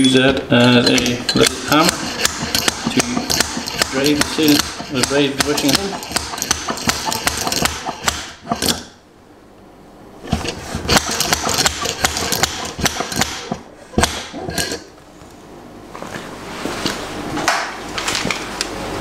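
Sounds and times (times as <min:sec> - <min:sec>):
rapid metallic knocking: 0:01.4 - 0:08.8, 0:10.9 - 0:14.2.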